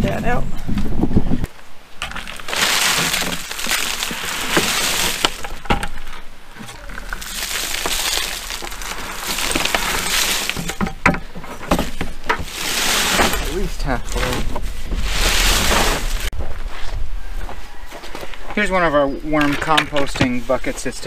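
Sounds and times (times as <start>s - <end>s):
dry leaves and wood chips rustling: 1.5s - 16.3s.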